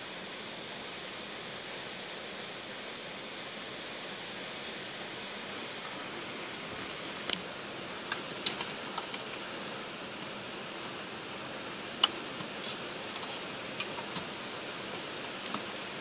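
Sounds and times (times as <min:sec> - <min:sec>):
steady hiss inside car: 0:00.0 - 0:16.0.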